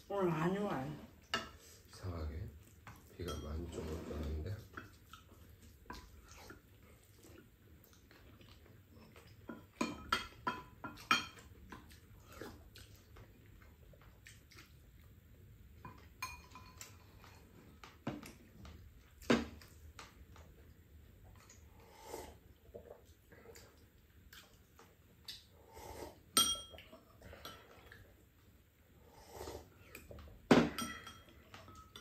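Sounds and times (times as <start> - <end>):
utensils clinking on ceramic bowls: 3.2 - 3.9, 15.9 - 17.4, 26.4 - 27.7, 30.6 - 32.0.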